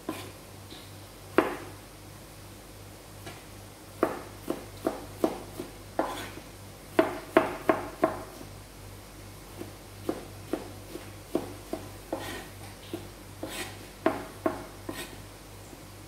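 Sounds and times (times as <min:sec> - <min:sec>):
knife chopping on plastic board: 0:04.0 - 0:06.3, 0:06.9 - 0:08.3, 0:10.0 - 0:15.1.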